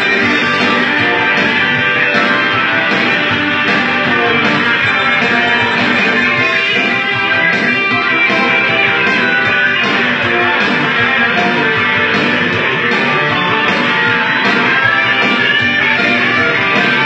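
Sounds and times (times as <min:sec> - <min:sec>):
electric guitar: 0:00.0 - 0:17.0
rock band playing loudly: 0:00.0 - 0:17.0.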